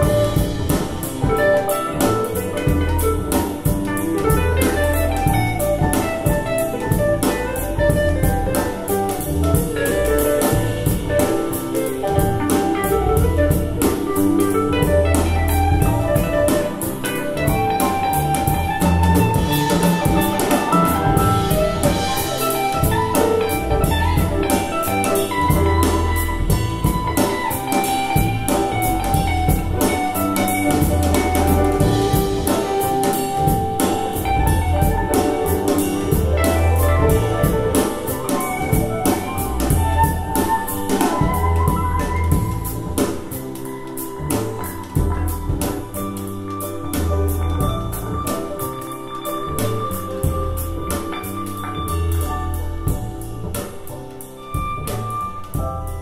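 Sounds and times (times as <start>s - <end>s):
music with drums and bass: 0.0s - 56.0s.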